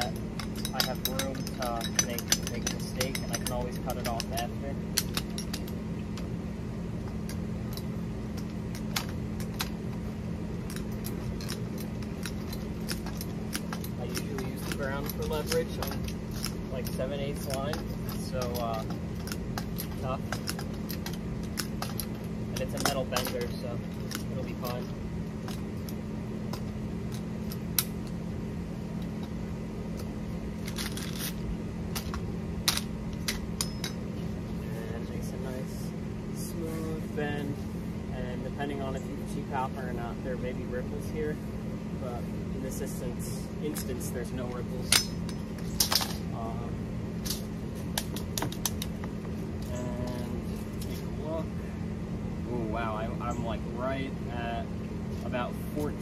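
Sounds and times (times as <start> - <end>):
metallic clicks of tube bender: 0.0 - 6.3
sharp metal clicks and taps: 0.0 - 6.3, 7.1 - 28.2, 47.2 - 51.0
steady low hum: 0.0 - 56.0.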